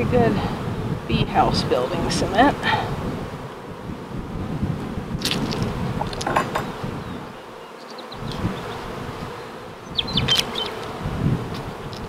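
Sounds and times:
honey bees buzzing: 0:00.0 - 0:12.0
wooden bars clicking and scraping: 0:05.2 - 0:06.7.

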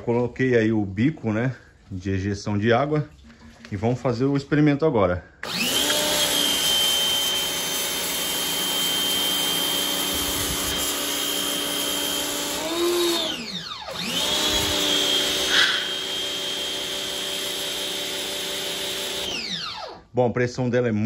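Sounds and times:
pressure washer motor whine: 0:05.4 - 0:20.1.

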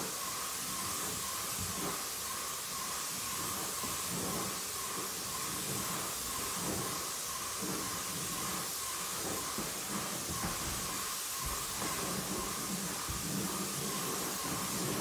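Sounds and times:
paint spray gun hissing: 0:00.0 - 0:15.0.

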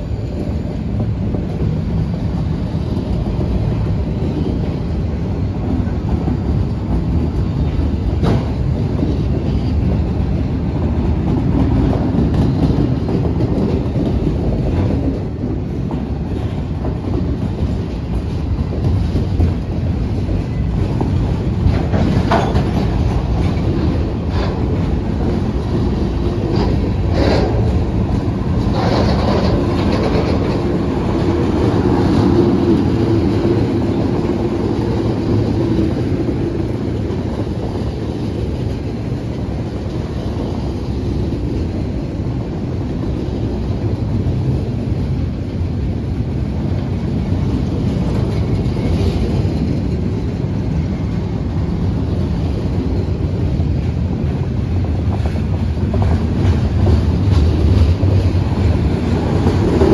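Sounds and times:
train wheels clattering over joints: 0:00.4 - 0:44.5.

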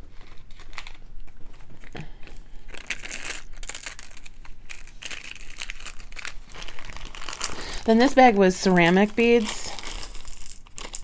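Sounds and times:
plastic bag of beads crinkling: 0:00.0 - 0:11.0.

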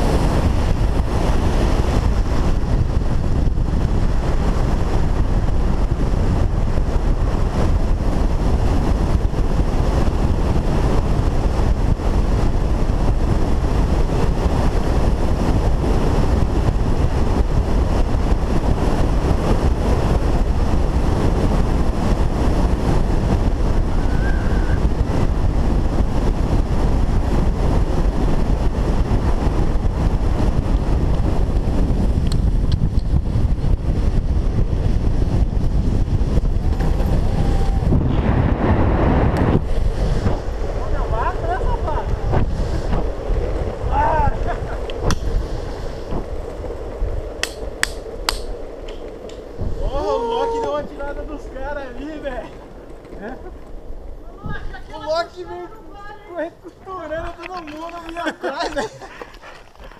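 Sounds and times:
longboard wheels rolling on asphalt: 0:00.0 - 0:59.9
wind rushing on microphone: 0:00.0 - 0:59.9.

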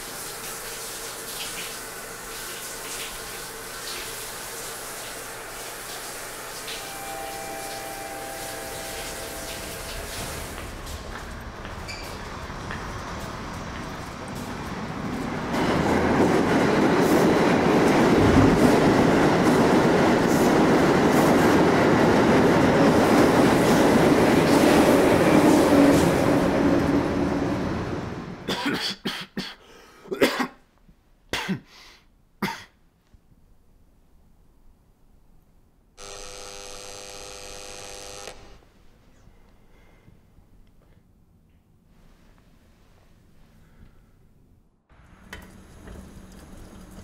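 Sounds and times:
rushing rumble: 0:10.1 - 0:28.4.

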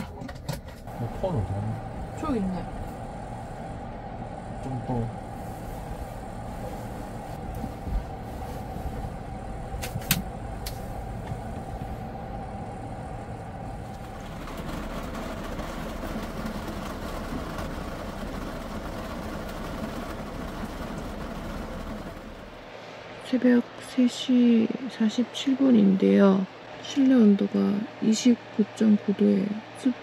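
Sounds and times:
rain on a vehicle roof: 0:00.0 - 0:22.8
air conditioner hum and whine: 0:00.0 - 0:30.0.

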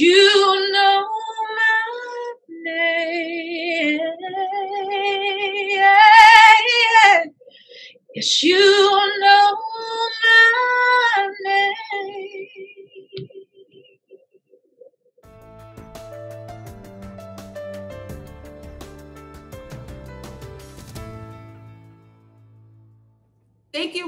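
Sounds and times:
woman singing slow worship song: 0:00.0 - 0:07.4, 0:08.1 - 0:13.2.

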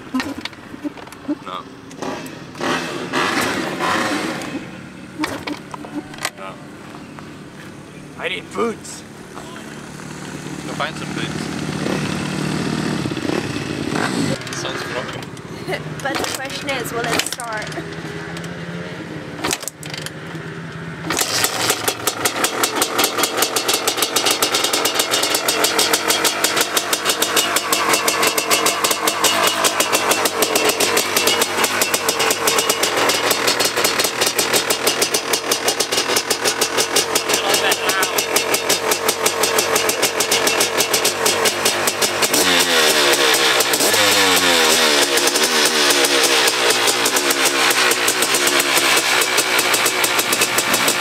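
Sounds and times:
engine revving: 0:01.4 - 0:51.0
dirt bike engine kick-started: 0:02.0 - 0:06.5, 0:09.6 - 0:15.4, 0:21.1 - 0:51.0.

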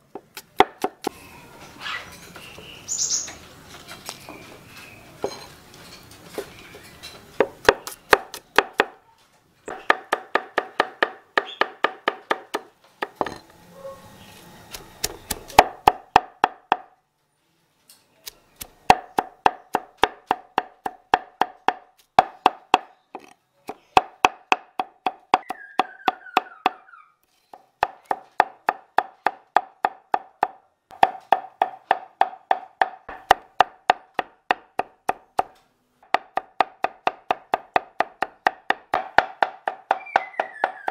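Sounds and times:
cleaver chopping on wooden board: 0:00.1 - 0:01.1, 0:07.4 - 0:09.0, 0:09.7 - 0:13.4, 0:15.0 - 0:16.9, 0:18.6 - 0:26.8, 0:27.5 - 0:40.9
bird chirp: 0:01.1 - 0:05.5, 0:25.4 - 0:27.7, 0:39.8 - 0:40.9.

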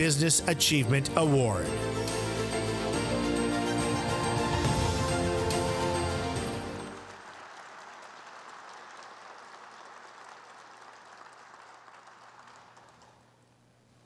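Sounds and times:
music: 0:00.0 - 0:07.2
audience applauding: 0:05.5 - 0:13.5.

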